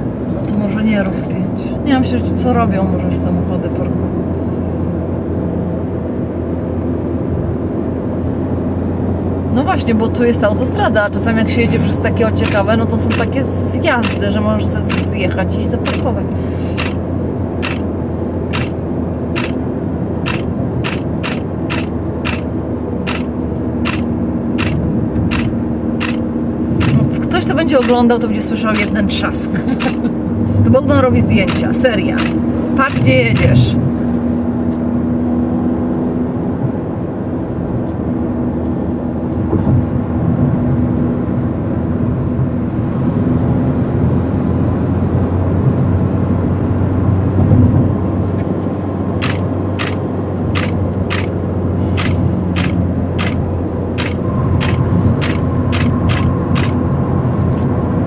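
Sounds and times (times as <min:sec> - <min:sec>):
car cabin road drone: 0:00.0 - 0:58.0
camera shutter clicks: 0:16.8 - 0:17.0, 0:17.6 - 0:17.9, 0:18.5 - 0:18.8, 0:19.4 - 0:19.6, 0:20.3 - 0:22.5, 0:23.1 - 0:26.2, 0:31.5 - 0:32.4, 0:49.2 - 0:50.0, 0:50.6 - 0:53.4, 0:54.0 - 0:56.8.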